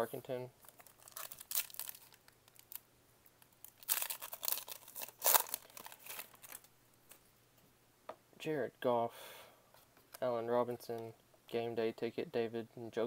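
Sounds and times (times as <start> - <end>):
foil wrapper tearing and crinkling: 0.6 - 2.8, 3.6 - 6.6.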